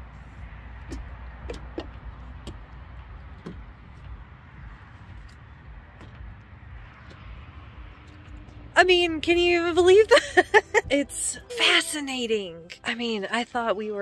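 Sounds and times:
distant traffic rumble: 0.0s - 14.0s
light knocks and taps: 0.8s - 4.2s.

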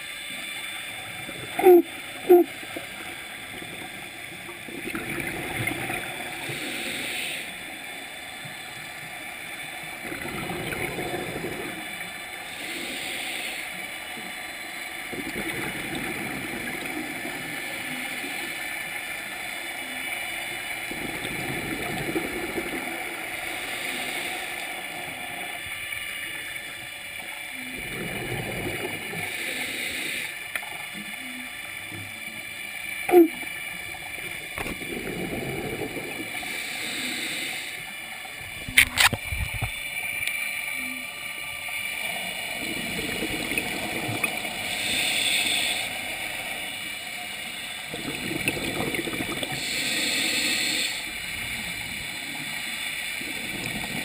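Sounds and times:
faint underwater hum: 0.0s - 54.0s
gurgling rush of bubbles: 1.1s - 7.2s, 9.9s - 12.0s, 15.0s - 18.6s, 20.4s - 25.8s, 27.5s - 29.6s, 33.0s - 37.4s, 41.7s - 54.0s
regulator breath hiss: 6.3s - 8.3s, 10.9s - 14.2s, 23.4s - 26.4s, 29.1s - 30.4s, 35.0s - 38.0s, 44.3s - 48.2s, 49.4s - 54.0s.

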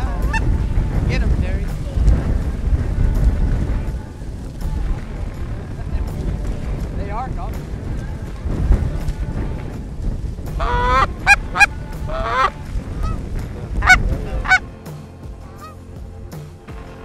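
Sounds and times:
geese honking and clucking: 0.0s - 0.6s, 10.5s - 14.6s, 15.4s - 15.8s
wind rumbling on microphone: 0.0s - 17.0s.

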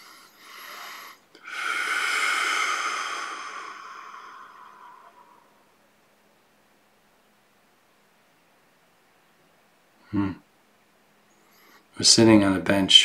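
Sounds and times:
person breathing in and out: 0.0s - 5.7s.

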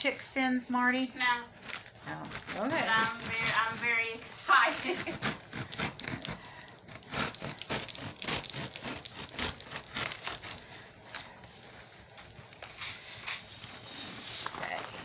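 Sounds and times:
hand scraping cardboard box: 1.7s - 3.9s, 4.5s - 10.6s, 13.5s - 15.0s.

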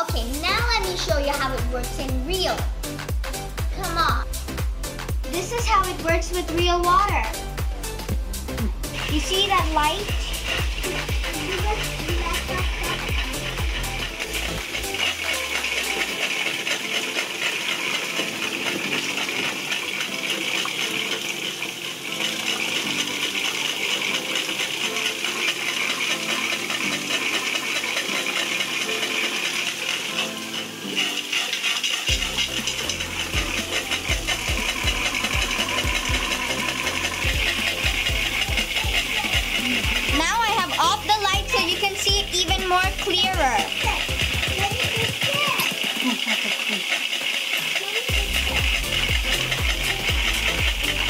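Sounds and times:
water pouring and splashing: 8.9s - 51.0s
tap water spattering on water wheel: 41.9s - 51.0s.

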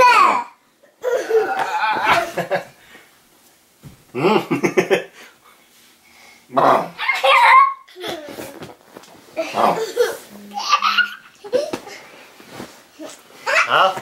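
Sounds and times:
man and children laughing: 1.0s - 2.7s, 4.2s - 5.1s.

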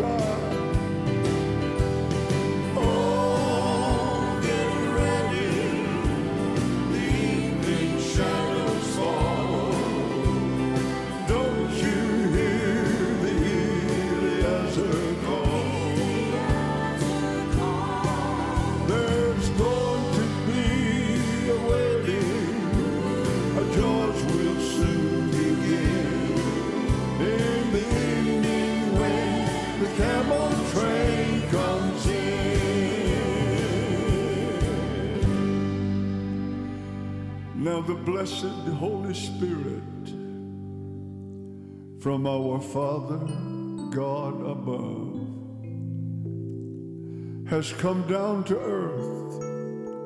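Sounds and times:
drums: 0.0s - 37.7s
live band playing: 0.0s - 38.7s
organ: 0.0s - 49.2s
piano: 0.0s - 50.0s
voices singing with vibrato: 2.5s - 35.9s.

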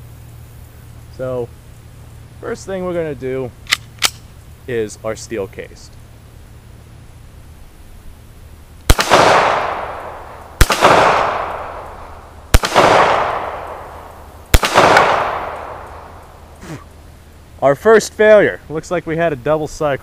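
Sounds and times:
pistol shots with echo: 8.9s - 16.2s.

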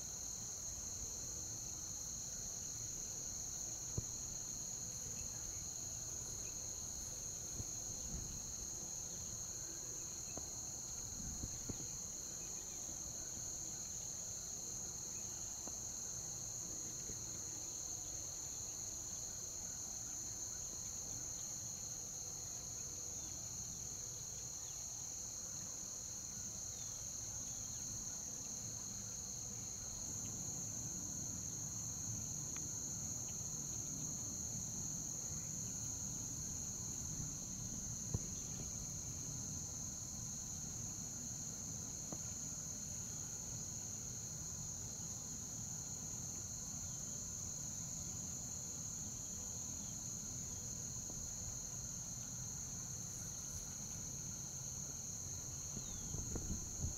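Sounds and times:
insects chirping chorus: 0.0s - 56.9s
faint ticks: 32.5s - 32.7s.

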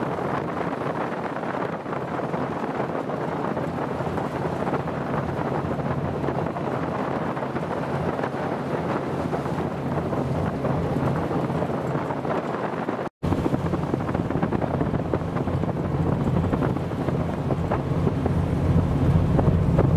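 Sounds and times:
wind buffeting microphone: 0.0s - 19.9s.

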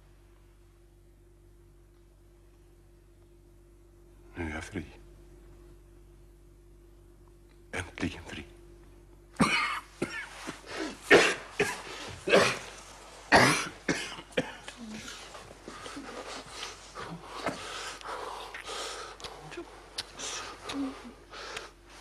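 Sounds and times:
man coughing hard: 9.4s - 10.4s, 11.0s - 14.7s
man breathing: 15.6s - 22.0s.

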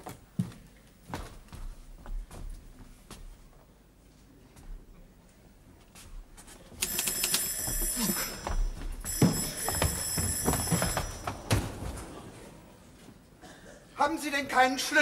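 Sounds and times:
electric doorbell ringing: 6.8s - 11.5s.

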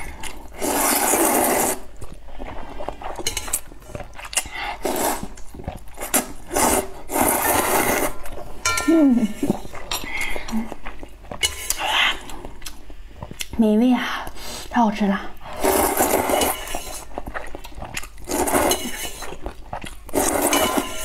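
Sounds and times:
person slurping noodles: 0.0s - 8.3s, 15.5s - 21.0s.

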